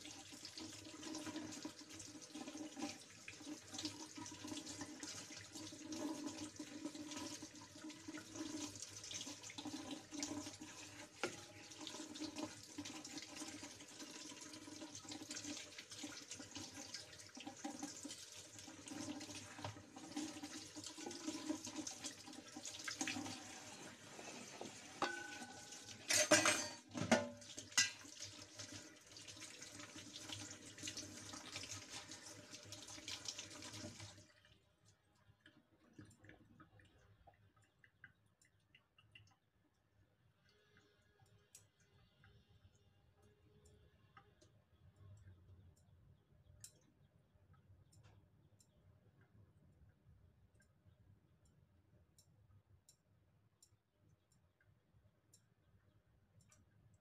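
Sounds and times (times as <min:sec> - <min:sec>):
tap water splashing into sink: 0:00.2 - 0:34.3.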